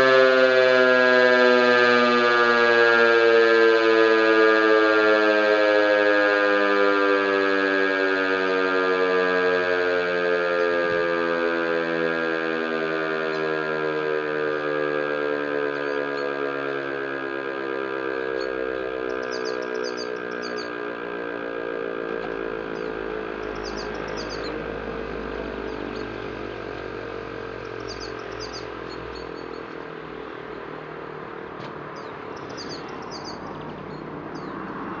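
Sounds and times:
siren tone sliding lower: 0.0 - 35.0
low rumble of coasting rotor: 9.6 - 35.0
birds chirping: 15.6 - 16.4, 18.0 - 21.1, 22.4 - 35.0.

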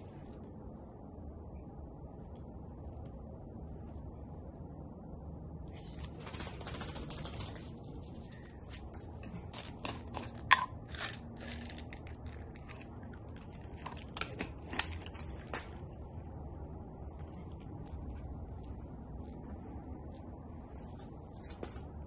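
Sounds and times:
dog crunching a treat: 6.0 - 16.4.

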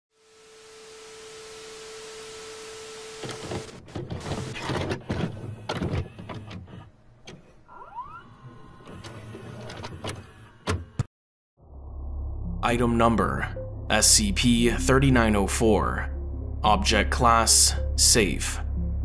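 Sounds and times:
rising tape whine: 0.1 - 3.8
static hiss: 0.1 - 3.8
crackling glitch noise: 0.2 - 4.7.

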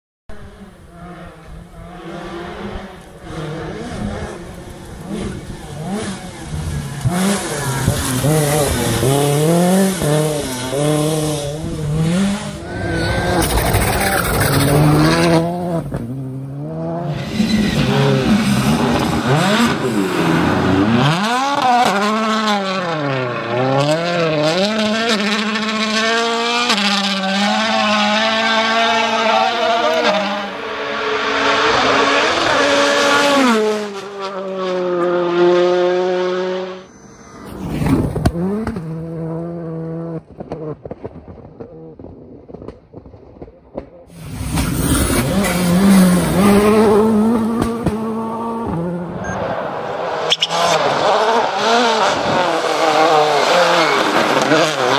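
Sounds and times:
rally car engines revving past: 0.3 - 54.9
tyre and grit noise: 1.8 - 21.8, 43.4 - 54.9.

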